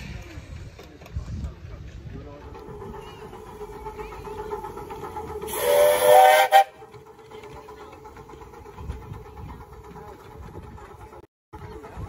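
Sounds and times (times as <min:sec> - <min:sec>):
steam hissing: 0:02.4 - 0:10.2
steam whistle blast: 0:05.5 - 0:06.8.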